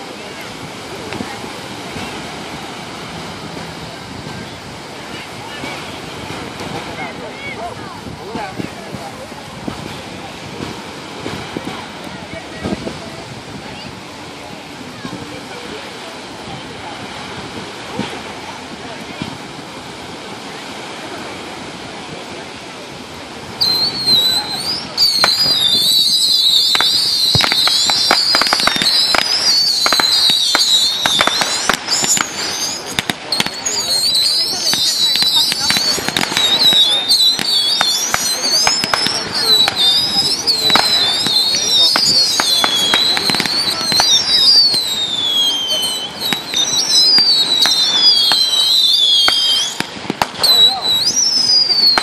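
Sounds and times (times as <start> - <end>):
fireworks whistling: 0.0 - 14.0, 23.1 - 52.0
fireworks popping and crackling: 0.0 - 52.0.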